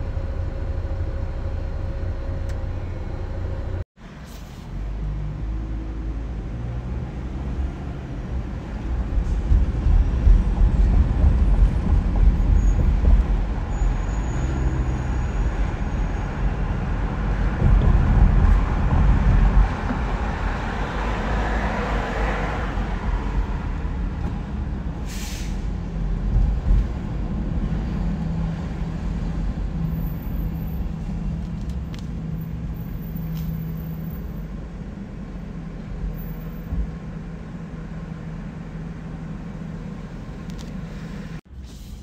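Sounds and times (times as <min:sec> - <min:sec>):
car road and engine noise: 0:00.0 - 0:42.0
short hiss: 0:25.1 - 0:25.6.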